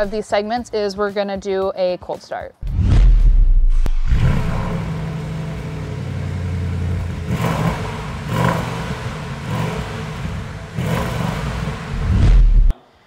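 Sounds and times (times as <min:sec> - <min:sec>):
car engine idling and revving: 0:03.7 - 0:12.7.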